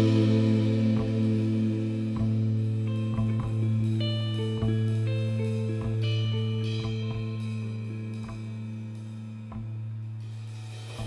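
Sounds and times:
indie rock guitar notes: 0.0s - 11.0s
steady low held note: 0.0s - 11.0s.

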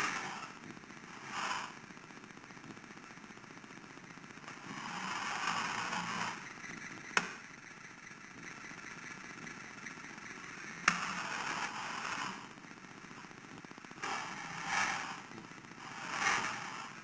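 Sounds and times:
toy motor whirring: 4.5s - 12.5s, 14.0s - 17.0s.

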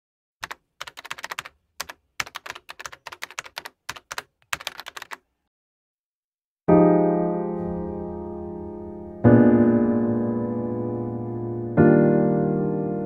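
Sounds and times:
keyboard typing: 0.4s - 5.3s.

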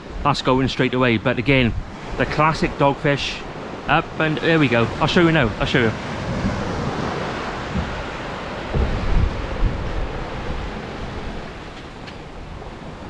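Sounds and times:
small waves washing onto sand: 0.0s - 13.0s
wind rumbling on microphone: 0.0s - 13.0s.

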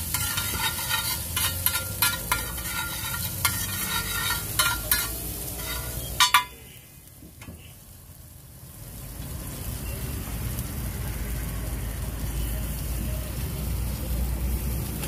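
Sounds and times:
metal ladle scraping on iron pan: 0.0s - 6.8s
egg frying sizzle: 0.0s - 15.0s.

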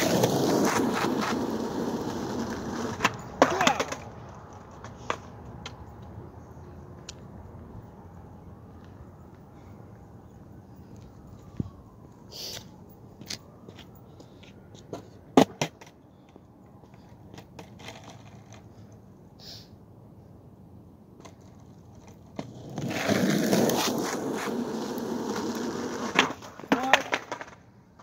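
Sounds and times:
skateboard clacking on pavement: 0.0s - 6.1s, 14.9s - 18.7s, 21.2s - 28.0s
skateboard wheels rolling: 0.0s - 9.4s, 10.2s - 19.1s, 21.0s - 28.0s.

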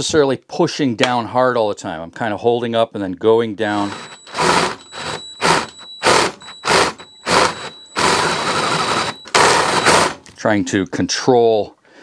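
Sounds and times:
drill cutting through steel: 3.7s - 10.2s.

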